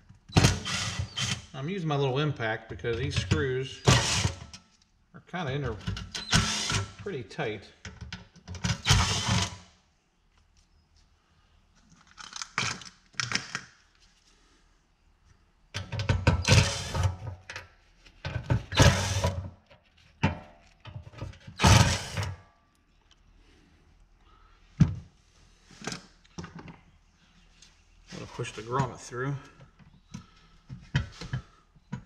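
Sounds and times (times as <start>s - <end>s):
impact driver hammering: 3.8s - 4.5s, 6.2s - 7.0s, 21.6s - 22.3s.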